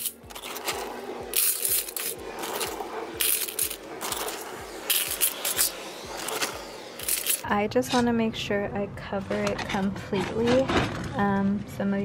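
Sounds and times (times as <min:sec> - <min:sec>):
litter pellets pouring and rattling: 0:00.0 - 0:07.4.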